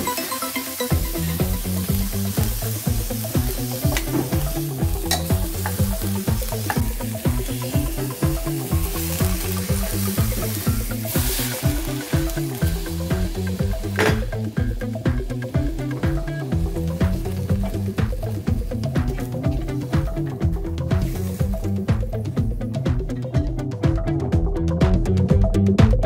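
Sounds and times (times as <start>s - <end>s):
chicken sizzling in a pot: 0.0s - 22.9s
background music with bass line: 0.0s - 26.0s
hiss of water poured in: 7.0s - 13.5s.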